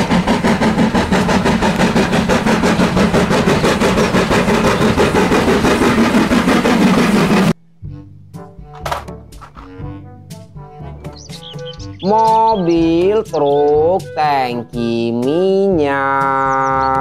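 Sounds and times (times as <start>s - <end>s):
steam locomotive chuffing: 0.0s - 7.6s.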